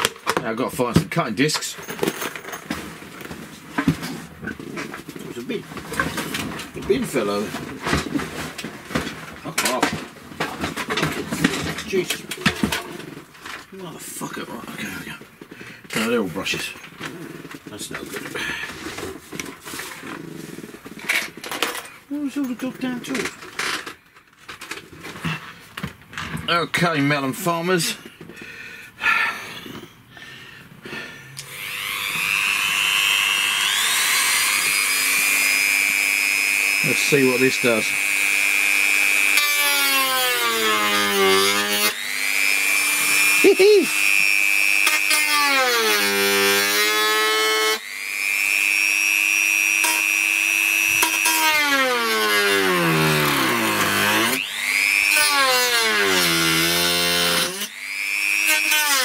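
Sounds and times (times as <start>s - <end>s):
rotary tool whining: 31.3s - 59.0s.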